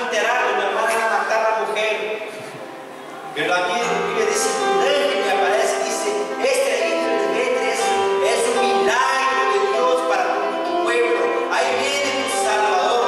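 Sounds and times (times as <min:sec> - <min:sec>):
musical accompaniment: 0:00.0 - 0:13.0.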